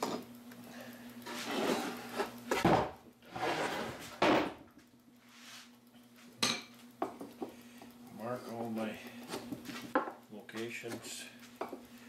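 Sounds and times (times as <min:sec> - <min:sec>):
wood sliding and scraping: 0:03.3 - 0:04.2.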